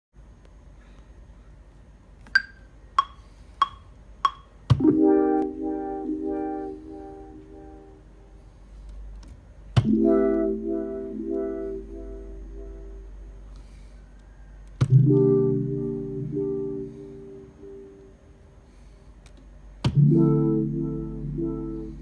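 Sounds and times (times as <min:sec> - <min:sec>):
metronome clicks: 0:02.3 - 0:06.5, 0:09.8 - 0:10.5, 0:14.8 - 0:15.5
electric piano synth chords: 0:04.7 - 0:08.4, 0:09.7 - 0:13.5, 0:14.8 - 0:18.6, 0:19.8 - 0:22.0.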